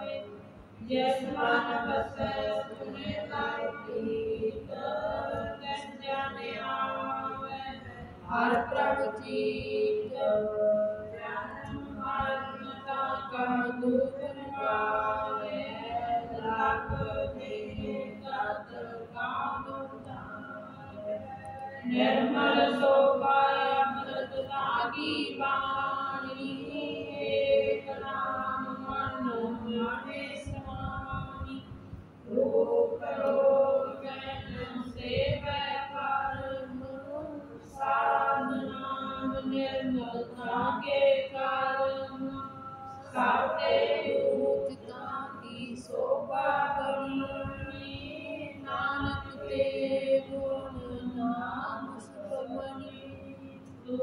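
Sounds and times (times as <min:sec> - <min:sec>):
women singing a hymn: 0:00.0 - 0:54.0.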